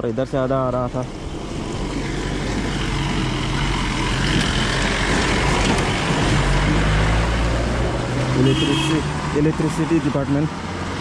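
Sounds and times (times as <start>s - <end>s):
constant rushing noise: 0.0s - 8.2s.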